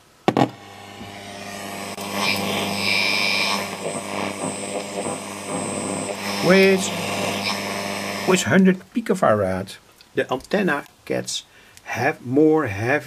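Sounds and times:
steady hum: 0.0 - 8.6
radio hiss and static: 0.3 - 8.8.

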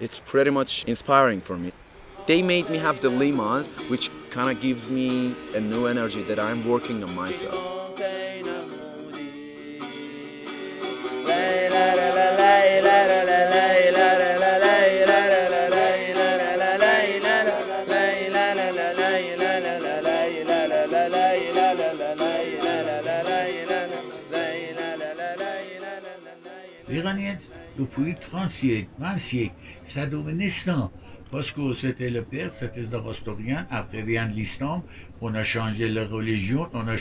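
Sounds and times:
plucked long-necked lute: 2.1 - 26.2
man and woman singing: 2.1 - 28.2.

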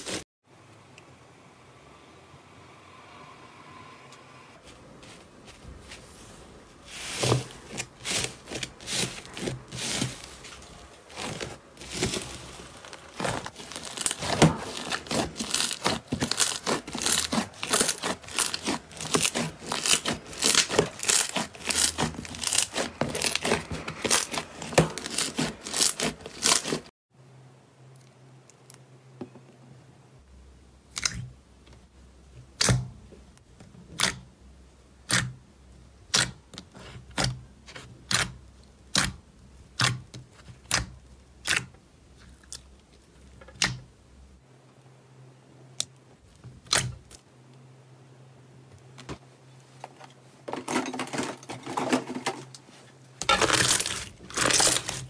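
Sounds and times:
slime crackling and popping: 11.1 - 26.9.

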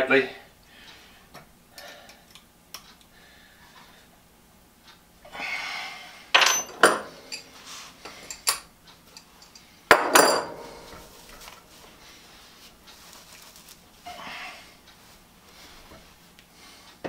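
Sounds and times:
metal parts clinking and knocking: 6.4 - 7.5
scraping rustle: 11.0 - 14.2.

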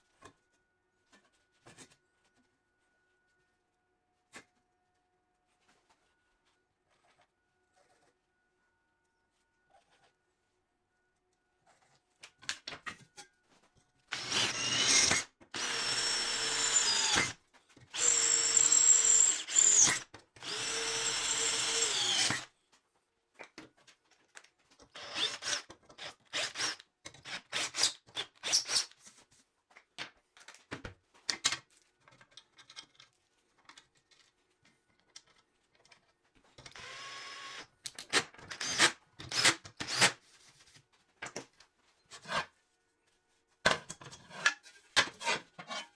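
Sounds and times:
cordless drill boring into steel: 14.1 - 22.5, 36.8 - 37.7, 38.6 - 40.0.

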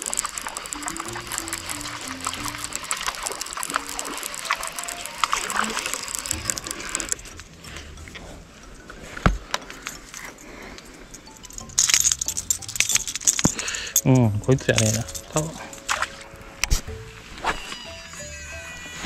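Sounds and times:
fishing reel clicking: 0.0 - 7.8, 11.2 - 16.3.

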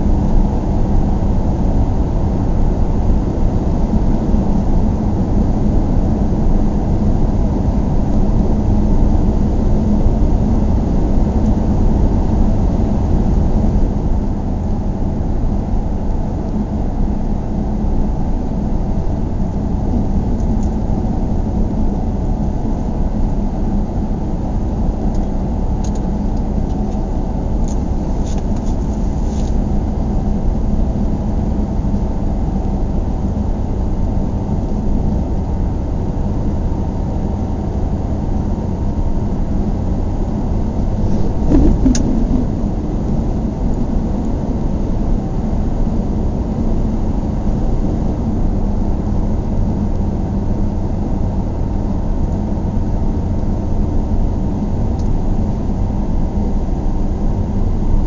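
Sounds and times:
car engine and tyre rumble: 0.0 - 57.8
car bump: 41.1 - 42.6.

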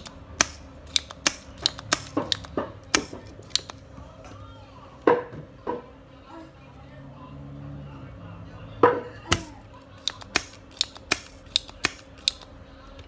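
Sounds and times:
sharp clicks and taps: 0.0 - 3.8.

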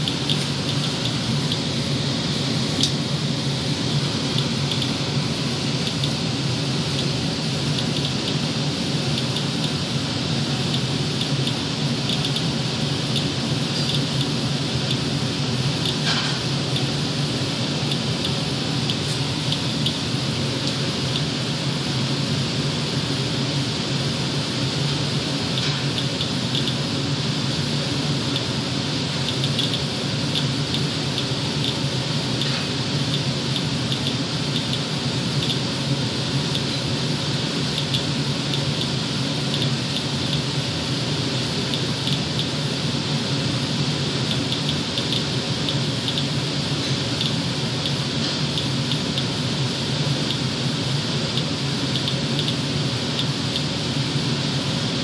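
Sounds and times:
fan-like rush with low hum: 0.0 - 55.0
geiger counter clicking: 10.7 - 12.5, 29.2 - 31.8.

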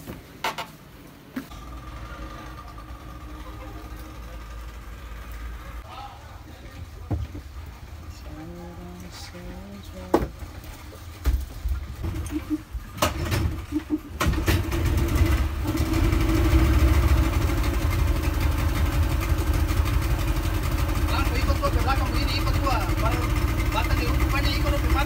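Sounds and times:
outboard motor idling: 1.5 - 5.8, 13.6 - 25.0.

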